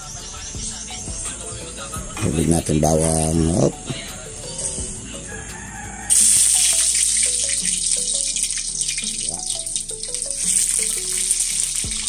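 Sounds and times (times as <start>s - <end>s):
background music: 0.0s - 12.0s
garlic sizzling in oil: 6.1s - 12.0s.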